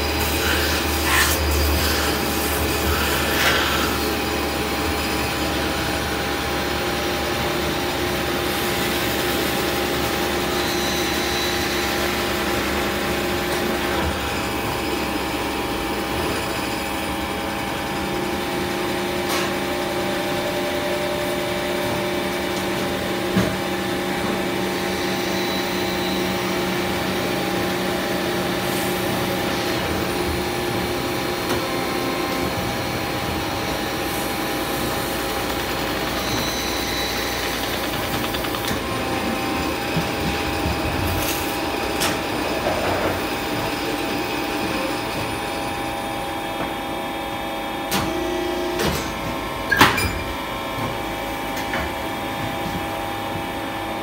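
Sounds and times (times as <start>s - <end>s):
metal-spinning machine humming: 32.0s - 42.6s.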